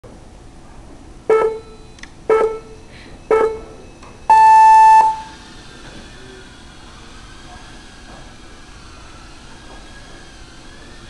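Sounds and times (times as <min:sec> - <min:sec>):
long high start tone: 0:01.3 - 0:05.4
short beeps: 0:01.3 - 0:05.4.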